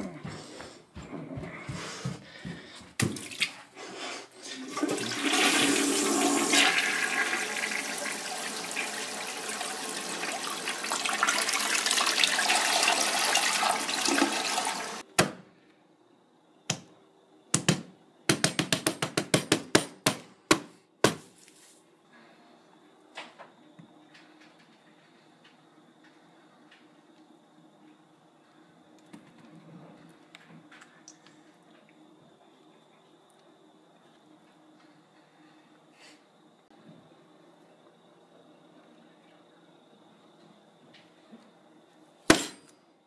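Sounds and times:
toilet flushing: 4.3 - 15.0.

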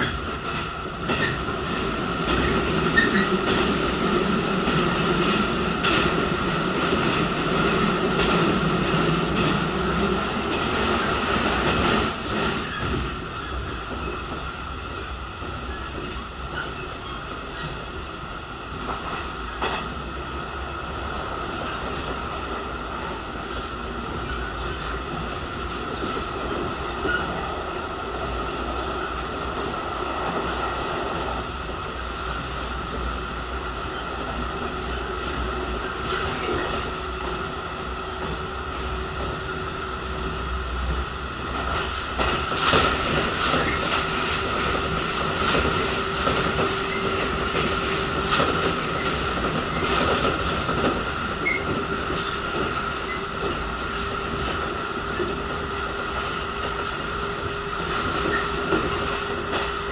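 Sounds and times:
wheels clicking over rail joints: 0.0 - 17.8, 40.2 - 59.9
train running gear rumble: 0.0 - 59.9.

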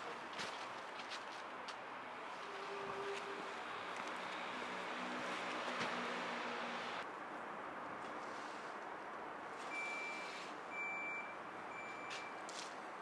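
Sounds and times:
outdoor noise: 0.0 - 13.0
reversing alarm beeps: 9.8 - 12.4.

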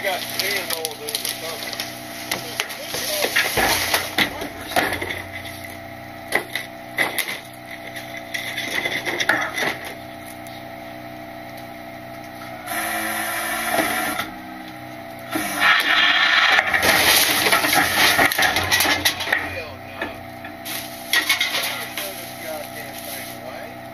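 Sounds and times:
hydraulic packer crushing load: 0.0 - 10.0, 12.3 - 23.5
garbage truck engine running: 0.0 - 23.9
trash knocking into hopper: 3.0 - 5.3.

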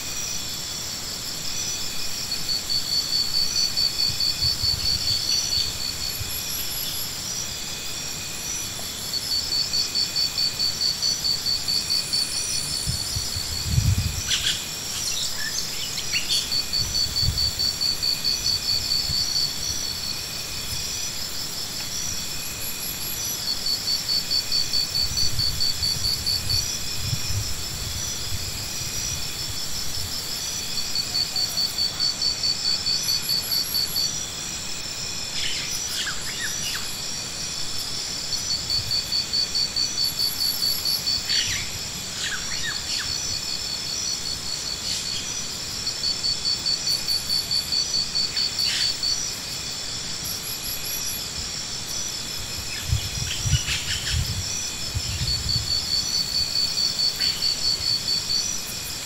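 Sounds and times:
insects buzzing: 0.0 - 59.0
short insect chirps: 35.2 - 59.0.

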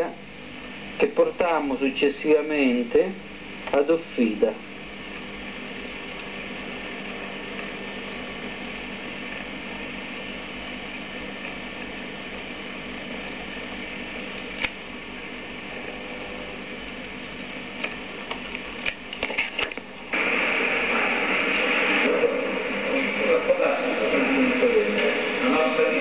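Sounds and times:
videotape hiss and hum: 0.0 - 26.0
loud rushing noise: 20.1 - 26.0.

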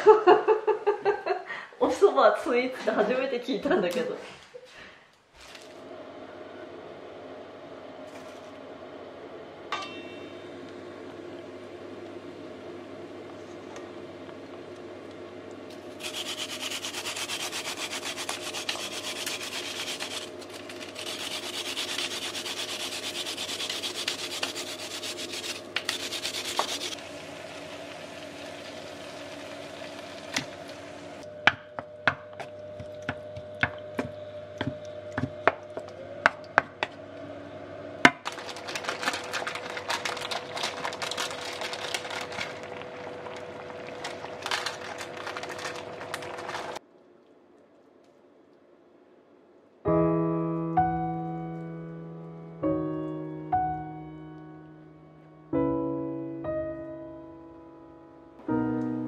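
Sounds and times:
root rasping on a plastic grater: 16.0 - 27.0.

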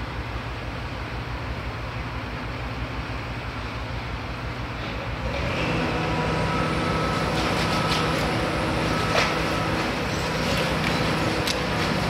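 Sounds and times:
excavator diesel engine rumbling: 0.0 - 12.0
hydraulic whine: 3.5 - 12.0.

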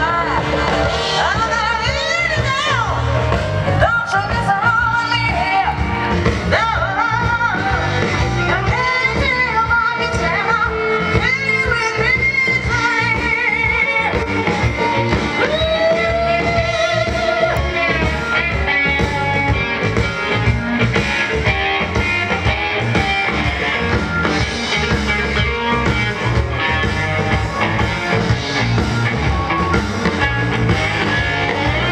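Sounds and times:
woman singing: 0.0 - 18.6
soul band playing: 0.0 - 31.9.

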